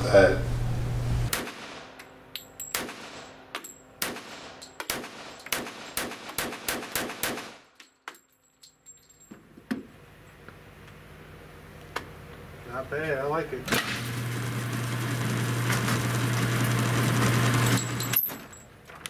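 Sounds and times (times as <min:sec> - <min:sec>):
pistol shots: 0:01.3 - 0:02.0, 0:02.7 - 0:07.7.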